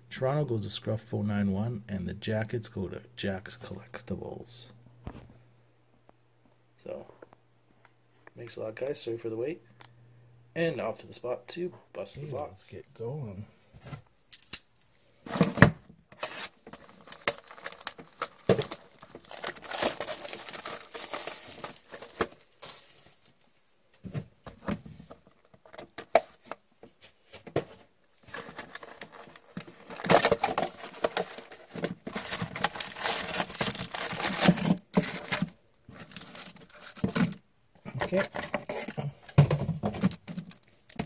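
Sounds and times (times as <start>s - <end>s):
plastic wrap crinkling and tearing: 16.2s - 23.2s, 28.2s - 37.3s.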